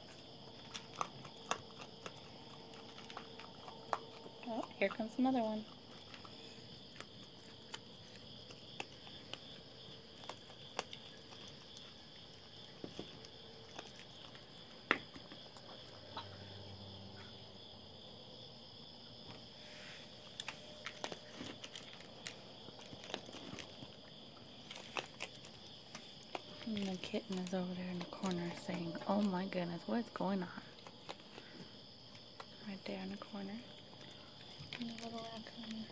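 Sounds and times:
animal crunching dry food: 0.0 - 16.4, 20.1 - 35.9
night insects trilling: 0.0 - 35.9.

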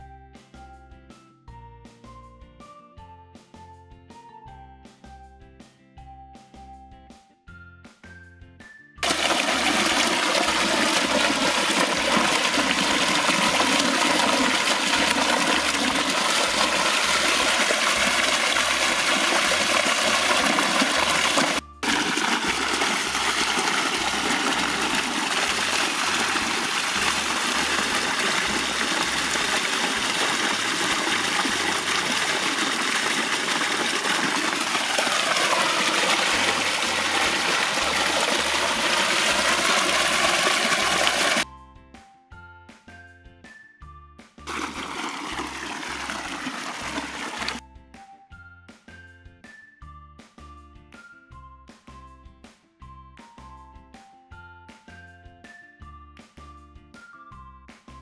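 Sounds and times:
water gushing from a pipe: 9.0 - 41.4, 44.5 - 47.6.

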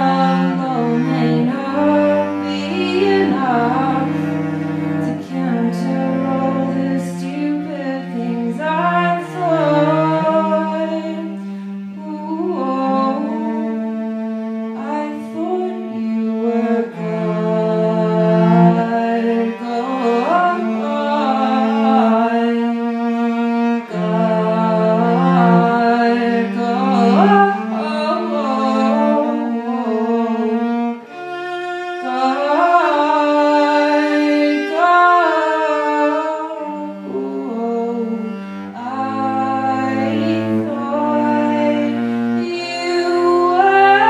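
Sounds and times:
person singing sliding notes: 0.0 - 11.1.

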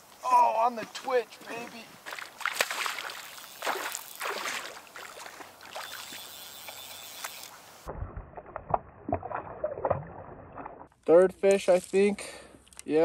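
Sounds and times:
fish splashing in water: 2.1 - 7.3.

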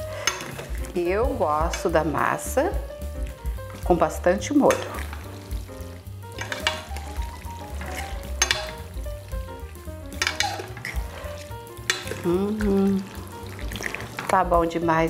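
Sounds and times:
forks stirring pasta in sauce: 3.2 - 5.5, 6.3 - 8.9, 10.2 - 14.6.

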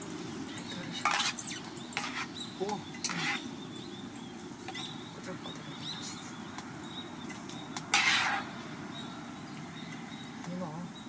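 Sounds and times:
low background noise: 0.0 - 11.0
utensils scraping and clinking: 0.9 - 3.4, 7.9 - 8.5.

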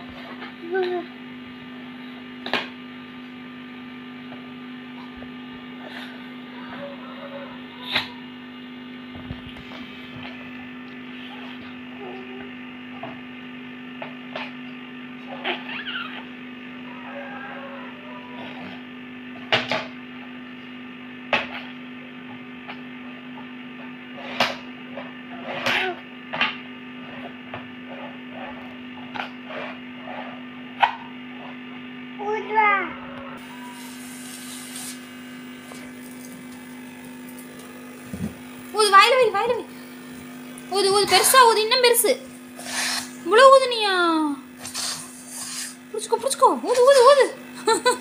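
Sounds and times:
electrical hum: 0.0 - 48.0
child blowing up balloon: 33.4 - 35.1, 42.6 - 43.3, 44.2 - 45.9
child blowing into balloon: 42.6 - 43.2, 44.6 - 45.8.

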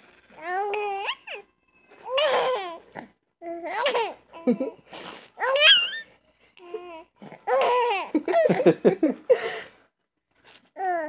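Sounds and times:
baby laughing: 0.8 - 2.8, 3.7 - 9.0.

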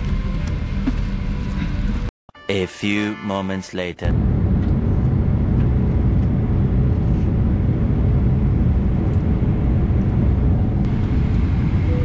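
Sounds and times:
jet engine rumble: 4.1 - 12.0
rushing airflow: 4.1 - 12.0.

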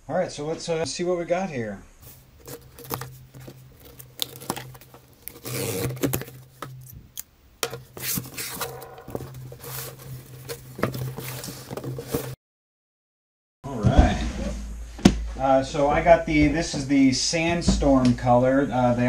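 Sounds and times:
tape and cardboard tearing: 2.0 - 12.4.

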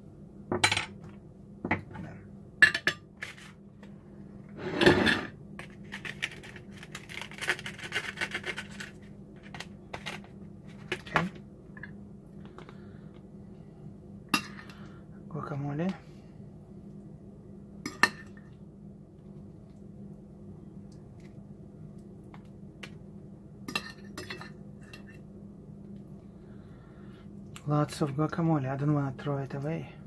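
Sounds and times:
fork and knife scraping plate: 4.6 - 5.3.

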